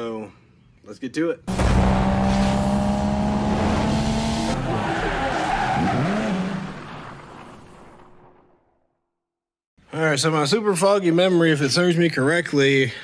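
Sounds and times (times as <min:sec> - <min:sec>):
race car engine: 0:01.5 - 0:07.5.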